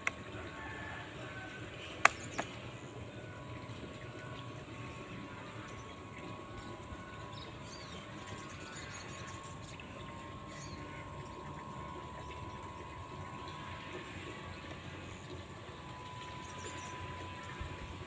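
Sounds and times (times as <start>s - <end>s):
model boat motor whine: 0.0s - 18.0s
bird chirps: 16.2s - 17.7s.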